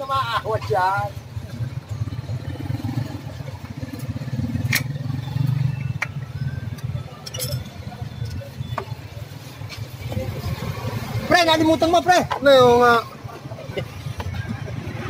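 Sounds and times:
tool clinking on metal: 7.2 - 8.4.

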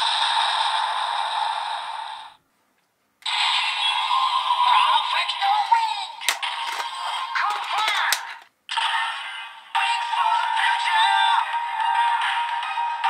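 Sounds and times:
synthetic voice from toy speaker: 3.8 - 11.6
toy electronic music: 6.3 - 8.4.

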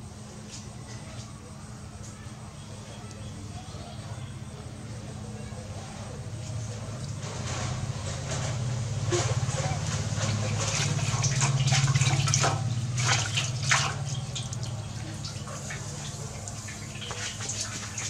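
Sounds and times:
steady low hum: 0.0 - 18.0
water splashing in a metal basin: 7.2 - 18.0.

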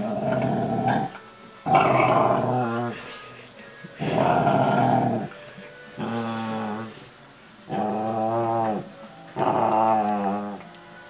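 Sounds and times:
dog grumbling and growling: 0.0 - 3.1, 4.0 - 5.4, 6.0 - 7.1, 7.7 - 10.6.

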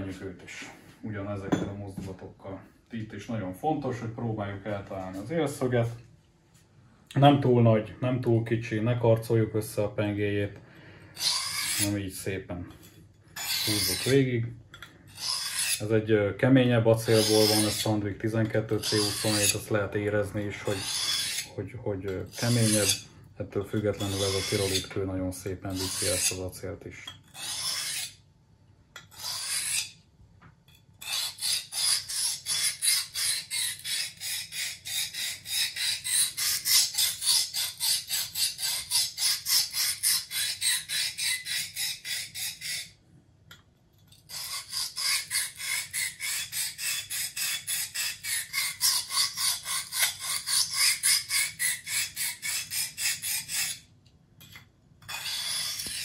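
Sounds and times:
knife blade scraping on sharpening stone: 11.2 - 12.0, 12.7 - 15.8, 17.0 - 19.7, 20.3 - 21.5, 22.1 - 23.0, 23.7 - 25.0, 25.7 - 26.4, 27.0 - 28.2, 29.0 - 30.0, 30.7 - 43.0, 44.3 - 53.8, 54.4 - 56.0.

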